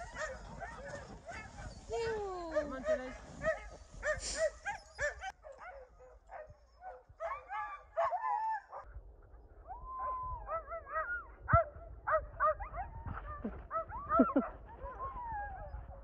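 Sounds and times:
sled dogs barking and yipping: 0.0s - 16.0s.

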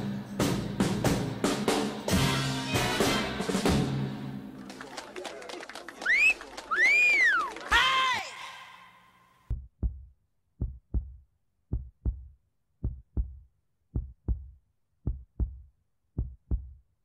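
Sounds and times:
heartbeat thumps: 9.5s - 16.8s.

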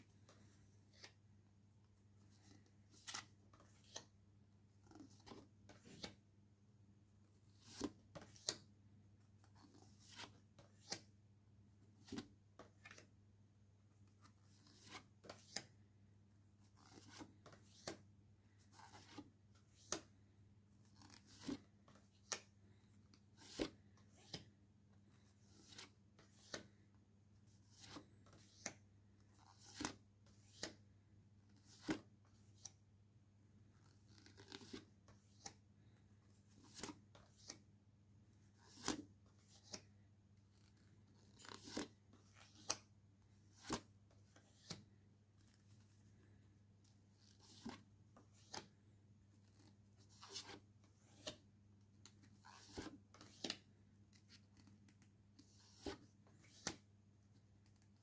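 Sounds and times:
postcards flipped by hand: 7.5s - 8.7s, 16.6s - 20.1s, 20.8s - 24.5s, 33.8s - 37.6s, 38.6s - 39.9s, 40.5s - 44.8s, 47.2s - 48.8s.

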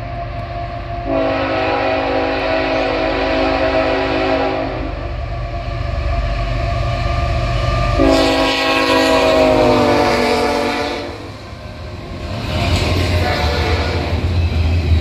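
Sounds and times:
diesel locomotive engine rumbling: 0.0s - 15.0s
train cars rumbling on rails: 0.0s - 15.0s
multi-tone air horn: 1.1s - 4.9s, 8.0s - 11.2s.

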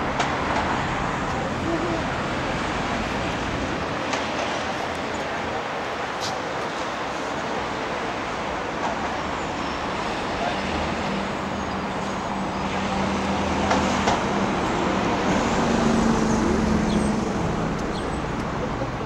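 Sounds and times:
city street traffic: 0.0s - 19.0s.

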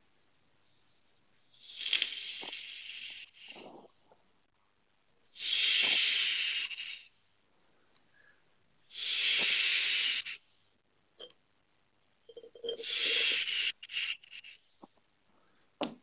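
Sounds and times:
breath hissing through vapour: 1.5s - 4.0s, 5.3s - 7.2s, 8.2s - 10.4s, 12.3s - 14.6s.

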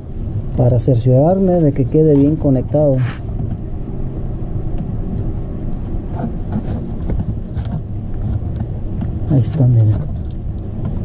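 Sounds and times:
motor rumbling: 0.0s - 11.0s.

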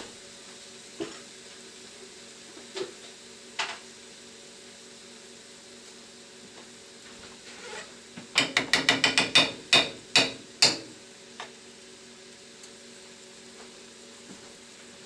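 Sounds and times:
utensil clattering against frying pan: 8.4s - 10.9s.

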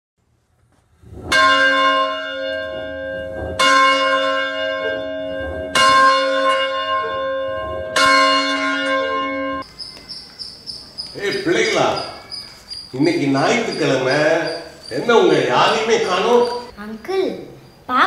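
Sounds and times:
church bell ringing: 1.3s - 9.7s, 13.0s - 16.7s.

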